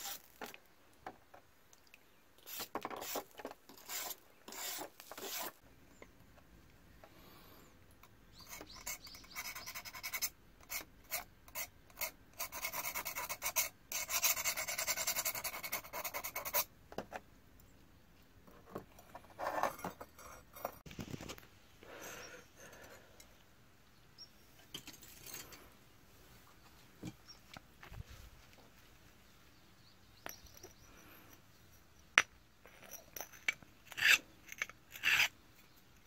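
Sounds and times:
stick scraping knife blade: 0:02.5 - 0:05.6, 0:33.4 - 0:35.3.

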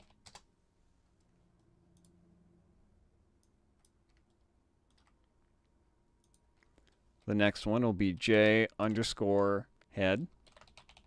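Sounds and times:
computer mouse clicks: 0:06.2 - 0:07.0.

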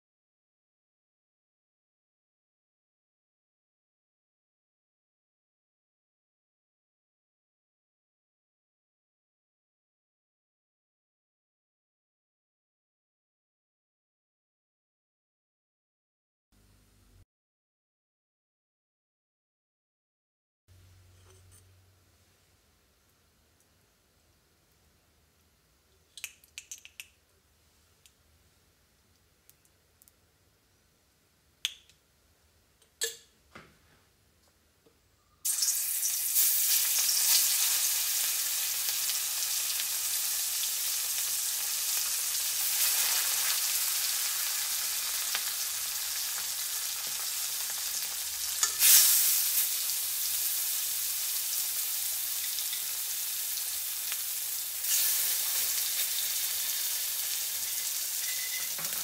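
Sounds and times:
fish sizzling in hot oil: 0:35.5 - 0:59.0.

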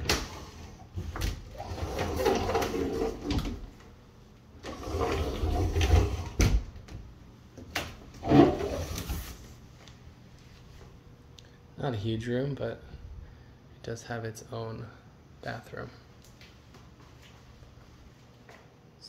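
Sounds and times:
closet doors opening and shutting: 0:00.0 - 0:09.4.

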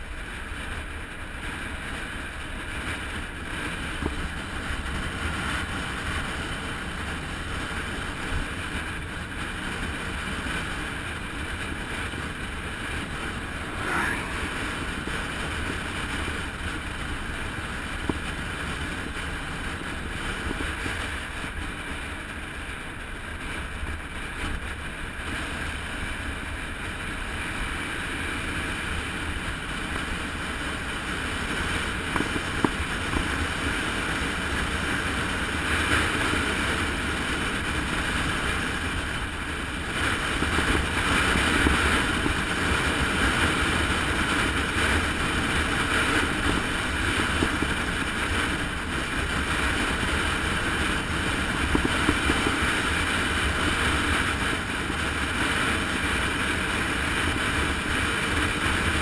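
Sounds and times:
tyre and road rumble: 0:00.0 - 0:59.0
wind rushing over microphone: 0:00.0 - 0:59.0.

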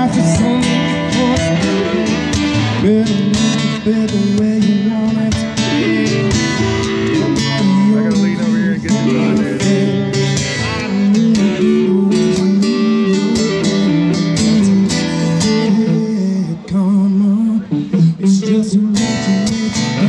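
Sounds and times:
electric guitar playing: 0:00.0 - 0:20.0
strummed acoustic guitar: 0:00.0 - 0:20.0.

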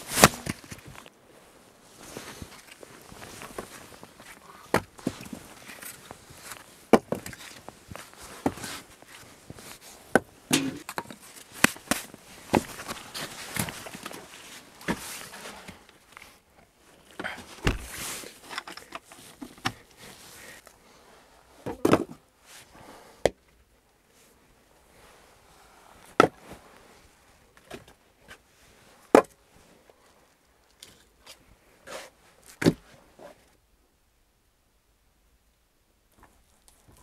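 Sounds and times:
rustling: 0:00.0 - 0:21.6
footsteps: 0:17.5 - 0:18.2.

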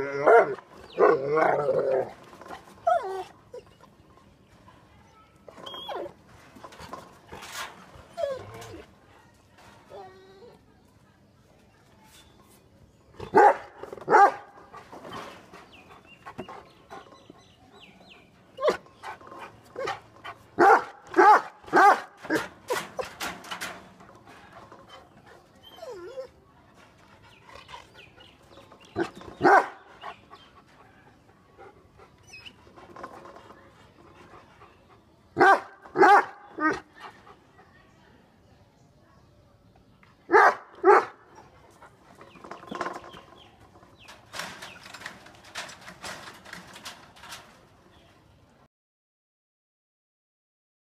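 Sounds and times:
dog whining: 0:08.1 - 0:08.8, 0:25.6 - 0:26.4
dogs barking: 0:13.3 - 0:14.6, 0:18.6 - 0:22.5, 0:29.0 - 0:30.2, 0:35.4 - 0:36.9, 0:40.3 - 0:41.2.

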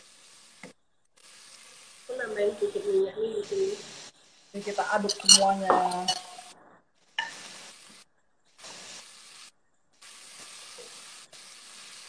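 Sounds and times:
food sizzling in oil: 0:00.0 - 0:08.0, 0:08.6 - 0:12.0
spatula stirring pot: 0:04.8 - 0:06.5.

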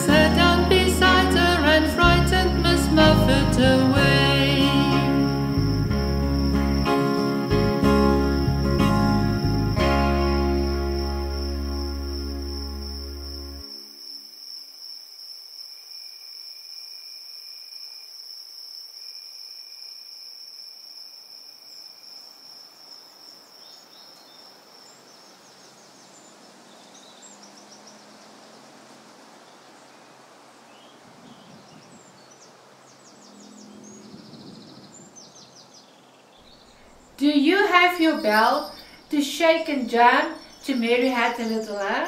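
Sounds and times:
crickets trilling: 0:00.0 - 0:42.0
birds chirping and tweeting: 0:04.6 - 0:13.7, 0:20.9 - 0:42.0.

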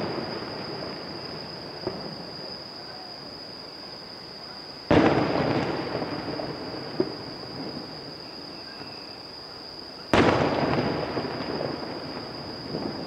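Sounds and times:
distant firework booms: 0:00.0 - 0:02.3, 0:04.9 - 0:07.9, 0:10.1 - 0:13.0.

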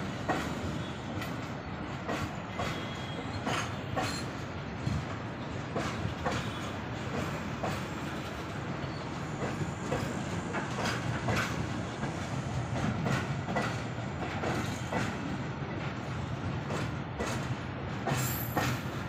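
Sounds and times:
train wheels clacking over rail joints: 0:00.0 - 0:19.0.

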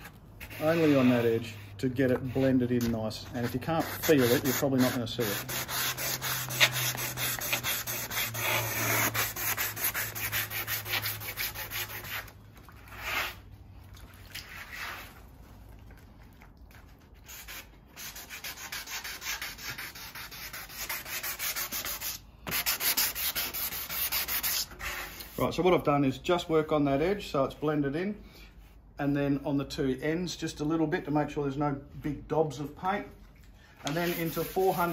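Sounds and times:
hand sanding with sandpaper: 0:00.4 - 0:12.3, 0:17.2 - 0:25.3, 0:33.9 - 0:34.9.

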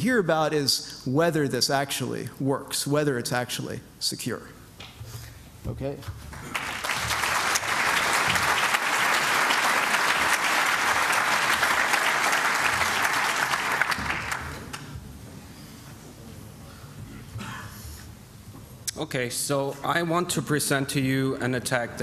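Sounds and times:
audience applauding: 0:06.3 - 0:14.9.

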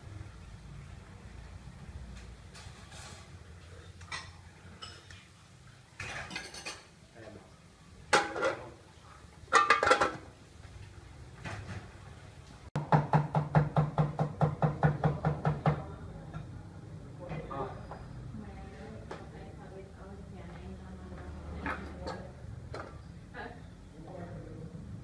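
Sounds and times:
pot lid clanking on pot rim: 0:09.5 - 0:10.3.

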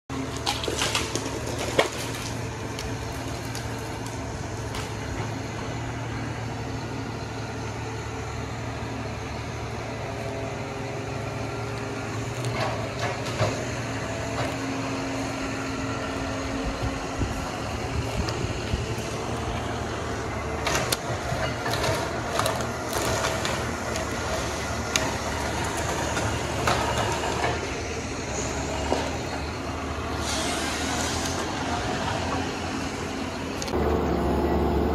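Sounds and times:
diesel engine running: 0:00.1 - 0:34.9.

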